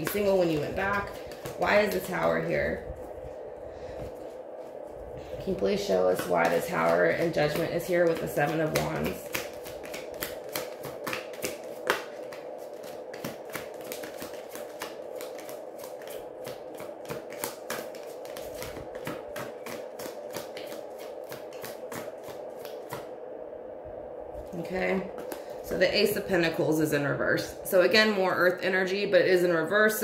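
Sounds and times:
cards being shuffled: 0.0 - 2.1, 6.4 - 23.0
faint steady hum: 0.0 - 30.0.

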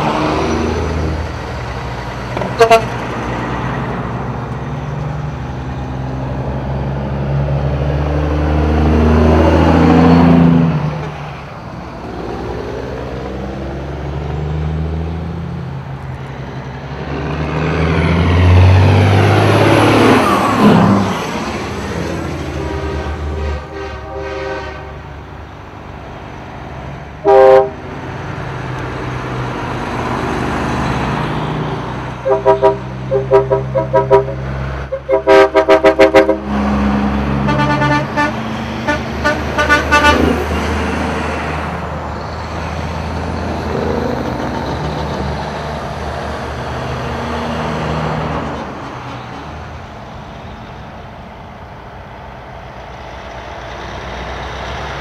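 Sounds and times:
diesel trucks rolling past: 0.0 - 55.0
truck horn blast: 2.4 - 3.0, 22.4 - 25.2, 27.2 - 27.8, 32.2 - 36.7, 37.3 - 40.4
short horn toots: 27.2 - 27.8.

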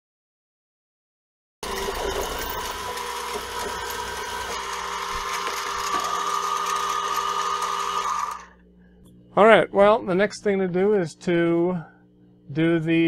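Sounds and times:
mill spindle whine and hum: 1.6 - 13.0.

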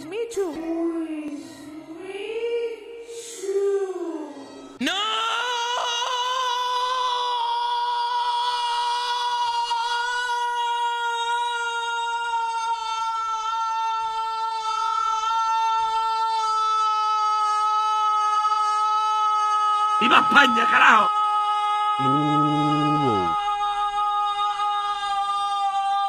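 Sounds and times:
person singing a long note: 22.0 - 25.8.

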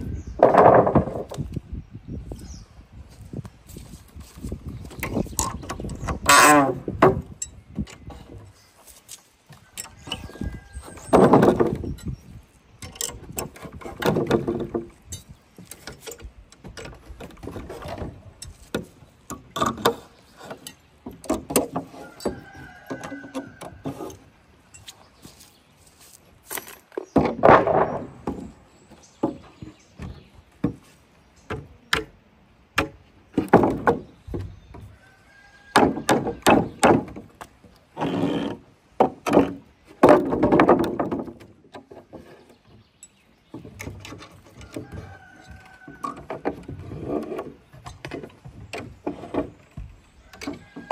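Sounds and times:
wood and tools knocking: 0.2 - 1.6, 4.1 - 8.6, 9.5 - 25.4, 26.5 - 32.2, 32.8 - 50.9.

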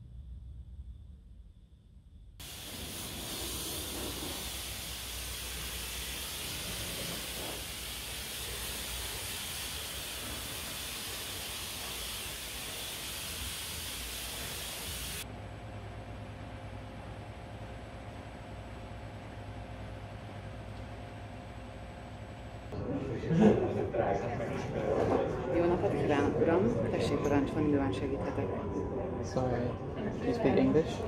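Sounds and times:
pressure washer spraying water: 2.4 - 15.2.

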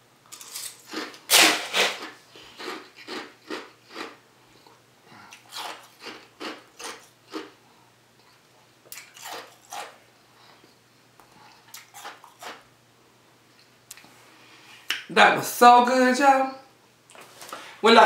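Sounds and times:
ice crunched between teeth: 0.3 - 4.1.

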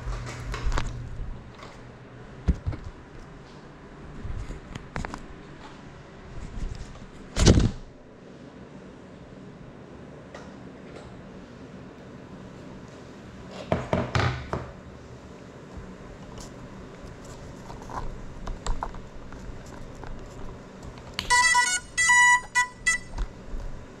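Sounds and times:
short electronic beeps: 21.3 - 23.2.

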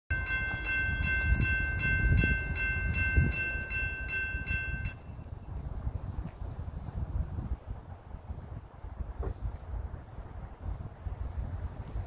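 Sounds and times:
crossing bell ringing: 0.1 - 5.4
train rumbling: 0.1 - 12.0.

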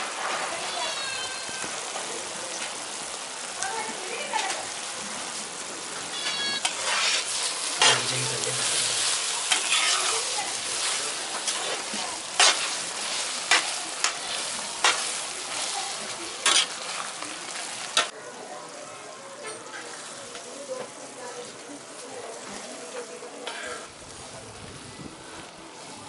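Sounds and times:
gravy sizzling and bubbling: 0.0 - 26.0.

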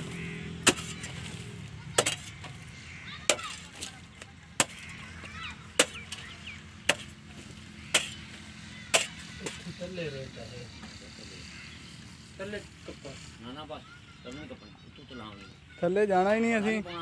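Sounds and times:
pickaxe striking hard soil: 0.0 - 1.3, 2.0 - 2.5, 4.6 - 5.0, 5.8 - 6.3, 6.9 - 7.2, 7.9 - 8.3, 8.9 - 9.6.

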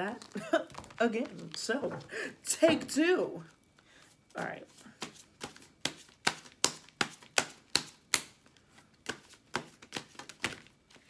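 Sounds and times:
cards being shuffled: 0.1 - 2.0, 5.0 - 11.0.

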